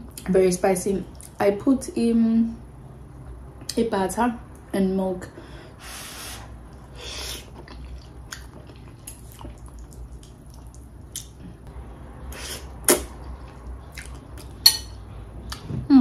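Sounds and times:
wet mouth clicks: 6.7 - 11.4, 12.4 - 13.2
chewing: 6.7 - 11.7, 12.4 - 14.6.

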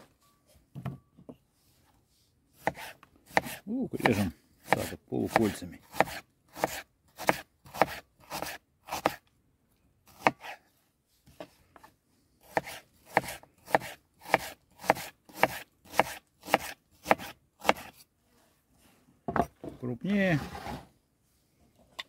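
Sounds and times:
knife slicing onion on board: 2.6 - 9.2, 10.1 - 10.6, 11.4 - 18.0.

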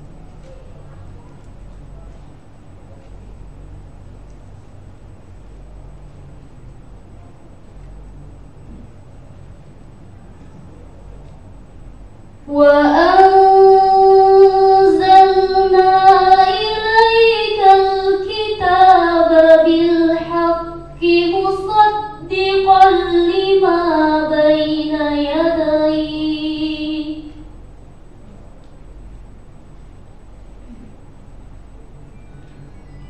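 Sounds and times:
girl reciting melodically: 12.4 - 27.5.

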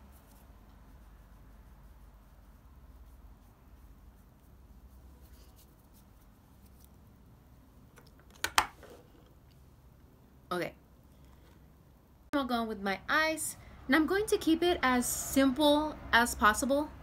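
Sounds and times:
fingertips rubbing skin: 0.0 - 7.3.

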